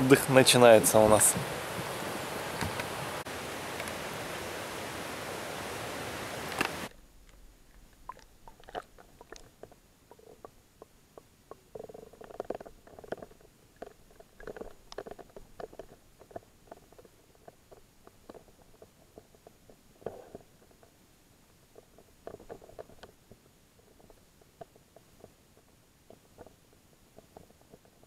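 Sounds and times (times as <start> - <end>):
water gurgling: 0.0 - 28.0
muffled underwater clicks and knocks: 2.6 - 3.0, 6.5 - 28.0.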